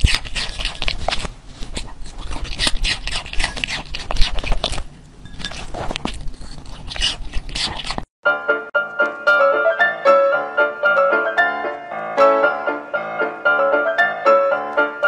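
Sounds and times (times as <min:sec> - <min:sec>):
dog crunching and chewing fruit: 0:00.0 - 0:08.1
piano music: 0:08.2 - 0:15.0.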